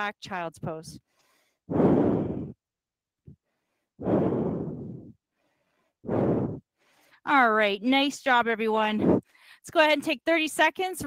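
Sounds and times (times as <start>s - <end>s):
woman breathing out heavily: 1.1s - 2.6s, 3.3s - 7.2s.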